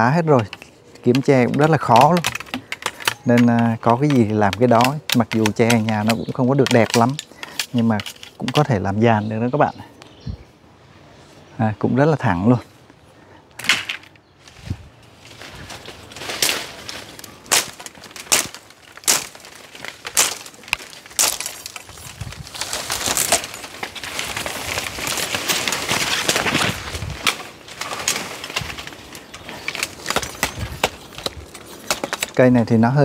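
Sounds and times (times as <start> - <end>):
leaves and branches rustling: 0.0 - 33.0
machete chopping bamboo: 0.4 - 8.6, 17.4 - 22.0, 29.5 - 32.4.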